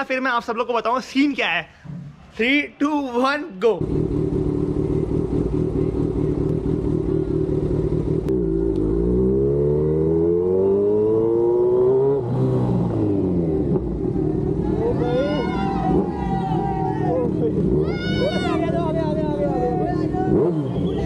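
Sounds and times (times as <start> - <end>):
motorcycle engine revving: 3.8 - 21.0.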